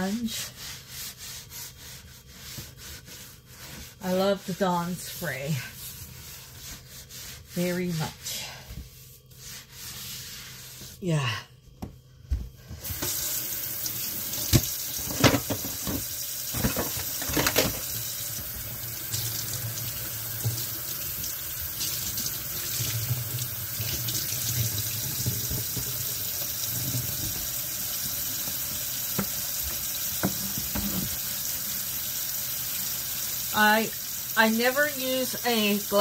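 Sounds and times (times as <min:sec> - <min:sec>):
tap running into sink: 0:13.9 - 0:18.0, 0:23.8 - 0:31.3.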